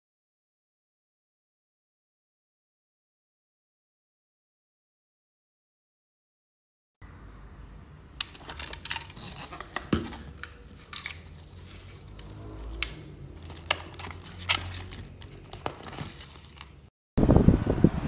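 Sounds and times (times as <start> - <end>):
plastic bags crinkling: 8.3 - 16.9.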